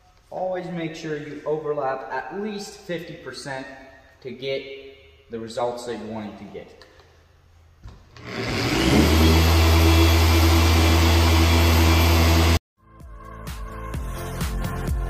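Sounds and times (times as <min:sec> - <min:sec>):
orbital polisher running: 0:08.1 - 0:12.6.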